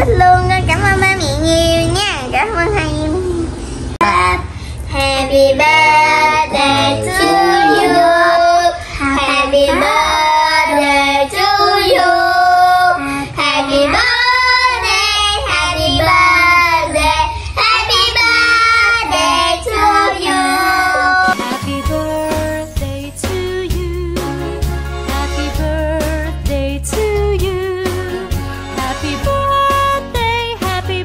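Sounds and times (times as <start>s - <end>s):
young children singing: 4.0s - 21.7s.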